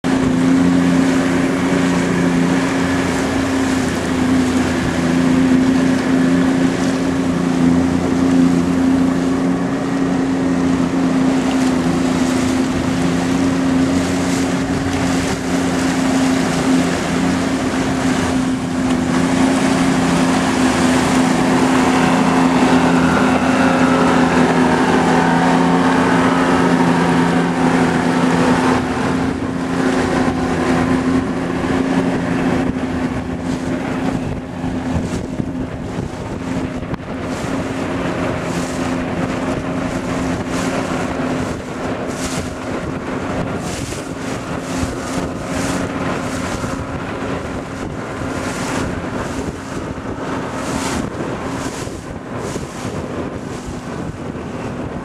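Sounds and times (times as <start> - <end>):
motorboat engine drone: 0.0 - 55.0
wind buffeting microphone: 0.0 - 55.0.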